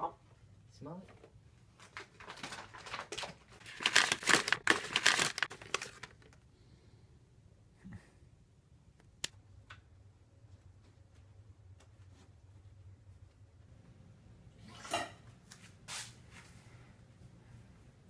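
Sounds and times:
paper crinkling and tearing: 1.8s - 6.4s.

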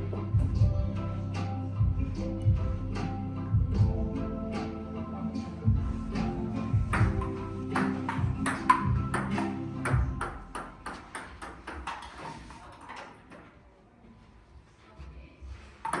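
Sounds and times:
background music: 0.0s - 11.6s.

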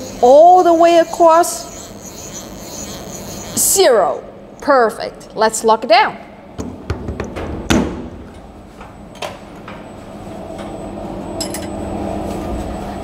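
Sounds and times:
low steady machine hum: 0.0s - 13.0s
metal knocks and clunks: 6.6s - 8.1s.

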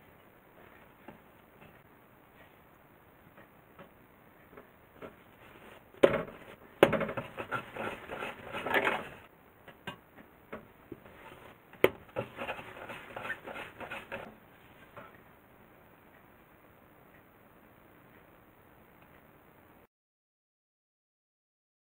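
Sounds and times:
hands rubbing dough on board: 7.1s - 9.3s, 11.1s - 15.0s.

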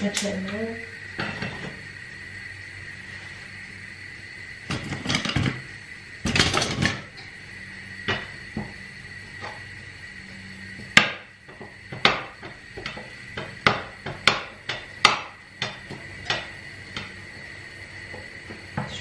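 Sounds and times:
spatula tapping frying pan: 10.8s - 17.2s.

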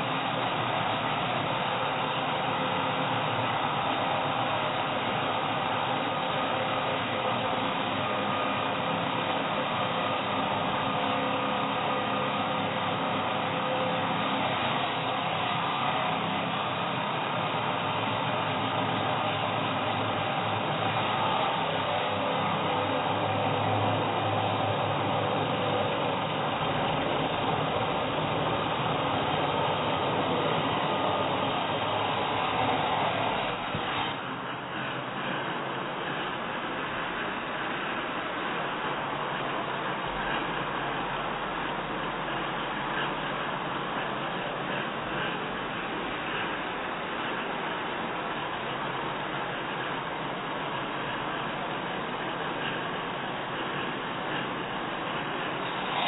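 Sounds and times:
angle grinder cutting steel: 12.0s - 34.2s, 55.4s - 56.0s.

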